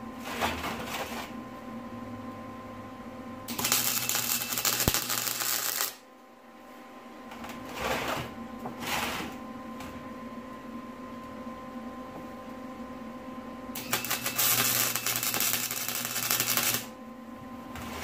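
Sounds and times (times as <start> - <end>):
welder crackling: 3.5 - 6.0, 13.8 - 17.0.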